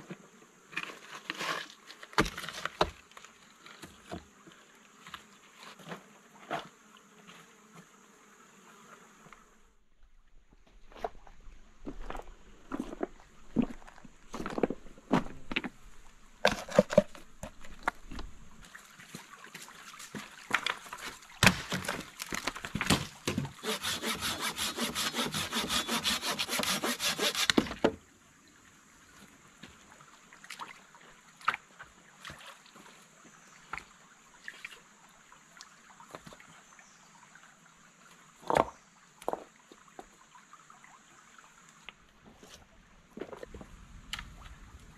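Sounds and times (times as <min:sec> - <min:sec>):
knocks of stones and wood: 0:01.2 - 0:03.1, 0:10.7 - 0:15.8, 0:16.4 - 0:18.4, 0:20.5 - 0:23.6, 0:38.4 - 0:39.5
hand saw cutting branch: 0:23.3 - 0:27.8.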